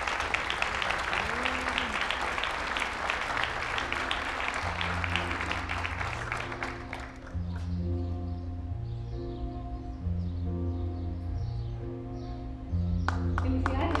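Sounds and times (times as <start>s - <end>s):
audience applauding: 0.0s - 7.6s, 13.1s - 14.0s
low sustained music notes: 2.0s - 14.0s.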